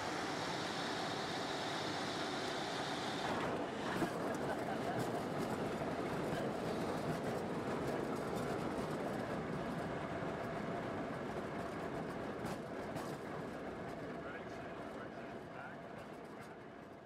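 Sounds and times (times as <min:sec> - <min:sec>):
small plane engine running: 0:00.0 - 0:09.9.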